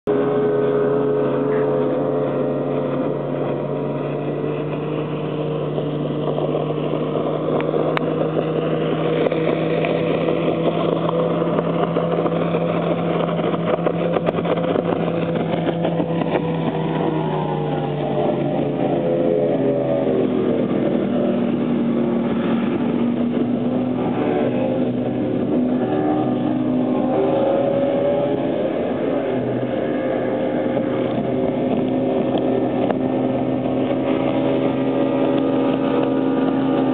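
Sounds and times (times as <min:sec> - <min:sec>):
outboard engine drone: 0:00.0 - 0:36.9.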